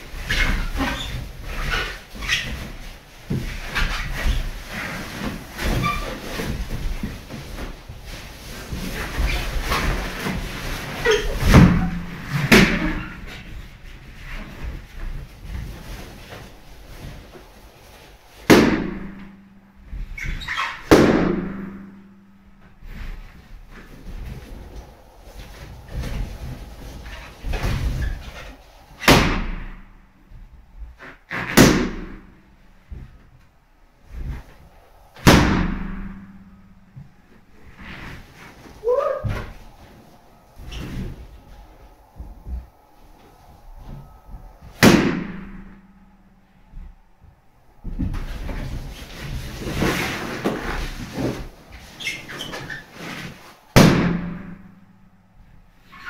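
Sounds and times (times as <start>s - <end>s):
balloons rubbing and squeaking: 0.0s - 22.0s, 22.6s - 33.0s, 33.6s - 54.7s, 55.7s - 56.0s
balloons bursting: 18.3s - 19.3s, 19.9s - 22.0s, 31.0s - 32.4s, 35.2s - 36.9s, 44.6s - 46.0s, 53.3s - 54.7s.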